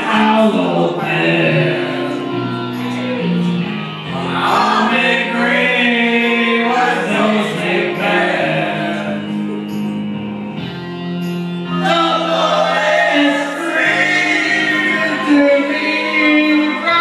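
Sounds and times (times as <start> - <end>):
man singing into microphone: 0.0 - 3.3, 4.0 - 9.8, 11.7 - 17.0
voices holding long notes: 0.0 - 10.9, 11.5 - 17.0.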